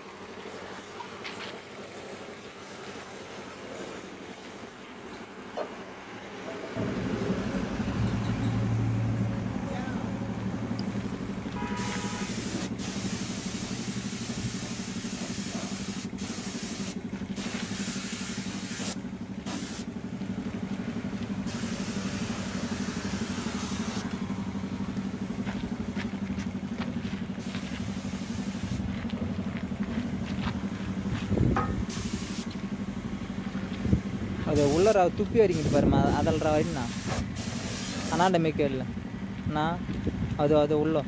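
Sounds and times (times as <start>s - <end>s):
low motor hum: 0.0s - 36.2s, 38.5s - 40.6s
paint spray gun hissing: 11.7s - 19.9s, 21.4s - 24.1s, 27.4s - 28.9s, 31.6s - 32.6s, 34.5s - 38.3s.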